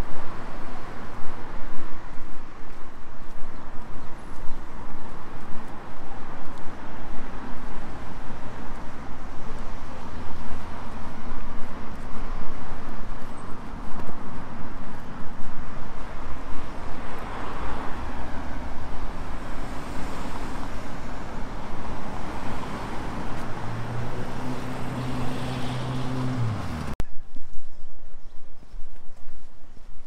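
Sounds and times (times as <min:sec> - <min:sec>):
passing cars road noise: 0:00.0 - 0:27.0
quiet street ambience: 0:00.0 - 0:30.0
engine hum: 0:16.0 - 0:27.0.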